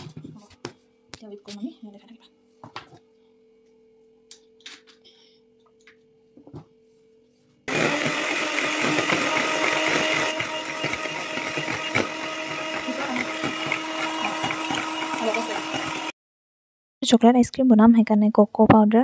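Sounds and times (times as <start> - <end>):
electric hand mixer whipping cream: 7.7 - 16.2.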